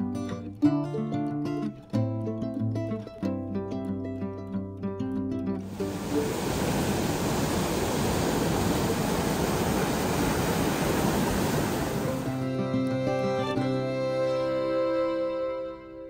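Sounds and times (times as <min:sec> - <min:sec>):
music: 0:00.0 - 0:06.4, 0:12.1 - 0:16.0
water rushing over weir: 0:05.7 - 0:14.2.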